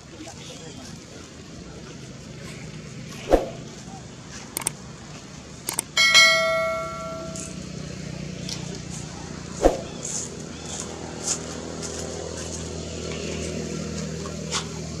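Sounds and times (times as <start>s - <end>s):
soft clicks: 4.6s - 4.8s, 5.7s - 5.9s.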